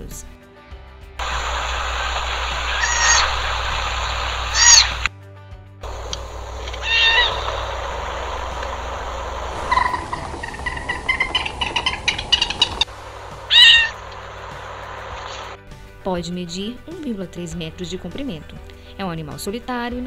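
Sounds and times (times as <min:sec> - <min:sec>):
water rushing from waterfall: 0:01.2 - 0:05.1, 0:05.8 - 0:15.6
otter high pitched call: 0:01.4 - 0:05.1, 0:05.9 - 0:15.6
otter short high chirps: 0:02.7 - 0:03.5, 0:04.5 - 0:05.1, 0:06.6 - 0:07.7, 0:13.5 - 0:14.0.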